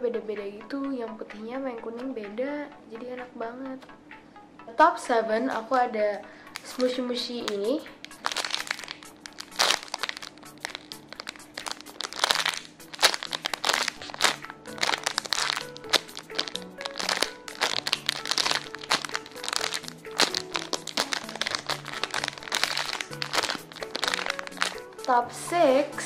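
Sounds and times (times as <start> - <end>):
soft background music: 0.0 - 26.0
plastic bag crinkling: 6.5 - 25.3.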